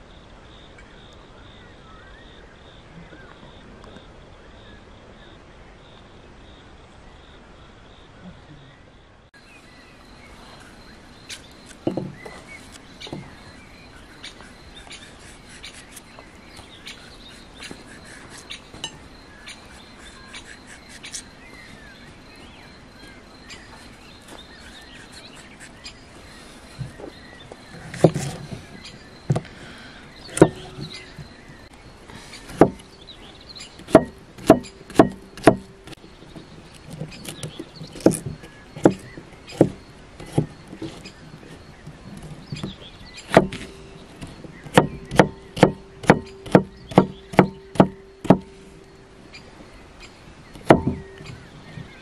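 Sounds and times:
knife chopping on wooden board: 0:32.5 - 0:32.9, 0:33.8 - 0:36.0, 0:37.2 - 0:41.0, 0:43.3 - 0:48.6, 0:50.6 - 0:51.3.

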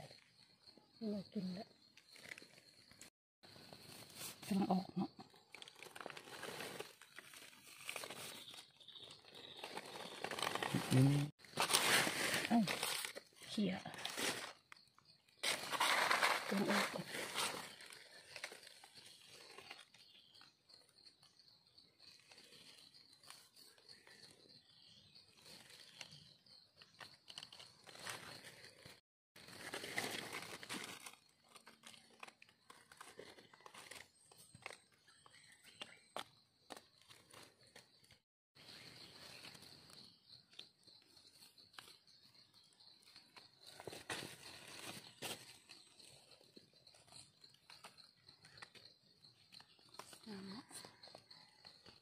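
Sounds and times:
dry leaves rustling: 0:05.5 - 0:14.6, 0:15.4 - 0:19.8, 0:29.4 - 0:34.0
knife scraping in leaf litter: 0:11.5 - 0:13.2.

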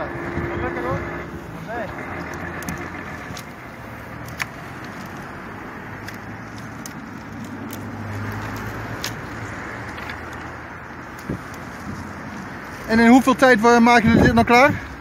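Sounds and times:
road traffic: 0:00.0 - 0:15.0
willow rods clicking and knocking: 0:01.9 - 0:12.5.

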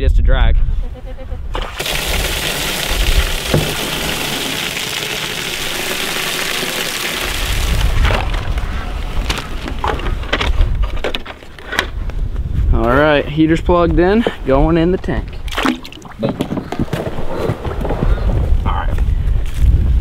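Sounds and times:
water splashing into plastic tank: 0:01.5 - 0:10.1, 0:15.4 - 0:17.0.

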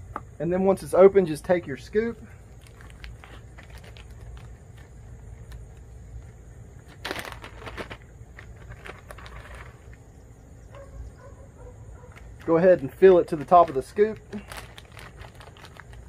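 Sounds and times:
plastic bag crinkling: 0:02.4 - 0:05.8, 0:06.8 - 0:10.0, 0:12.0 - 0:16.0.

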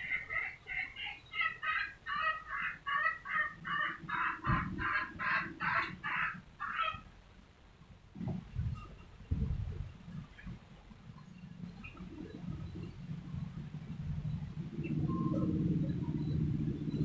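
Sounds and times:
chicken clucking: 0:00.0 - 0:07.1.

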